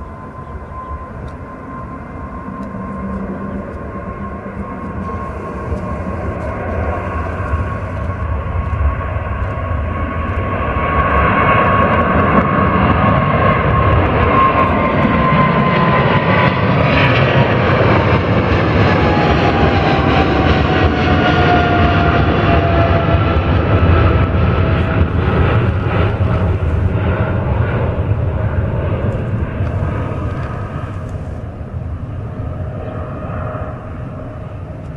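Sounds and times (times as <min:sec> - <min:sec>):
jet engine whine: 0:00.0 - 0:34.9
jet engines roaring: 0:00.0 - 0:34.9.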